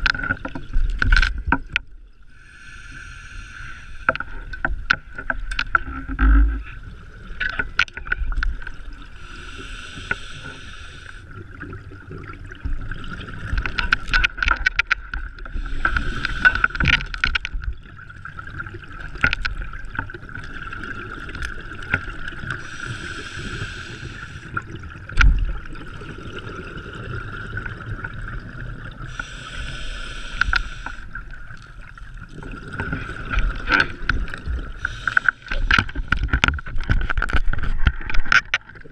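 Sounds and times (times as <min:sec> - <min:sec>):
diver breathing through regulator: 0:02.4 - 0:04.2, 0:09.1 - 0:11.3, 0:15.5 - 0:16.9, 0:22.6 - 0:24.6, 0:29.1 - 0:31.2, 0:34.8 - 0:36.2
exhaled bubbles: 0:15.2 - 0:38.9.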